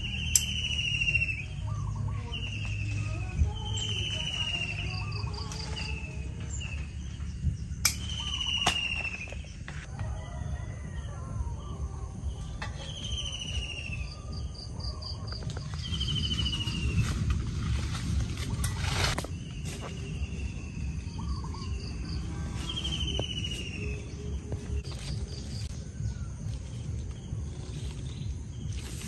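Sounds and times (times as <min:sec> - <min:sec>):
bird whistled descending call: 0:00.0 - 0:01.7, 0:07.9 - 0:09.5, 0:12.7 - 0:14.4
bird pulsed trill: 0:00.0 - 0:29.0
steady low rumble: 0:00.0 - 0:29.0.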